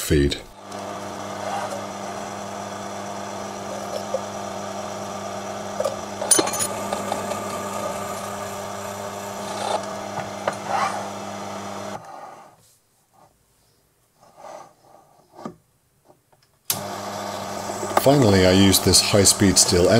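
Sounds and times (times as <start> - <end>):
lathe humming: 0.5 - 12.0, 16.7 - 19.9.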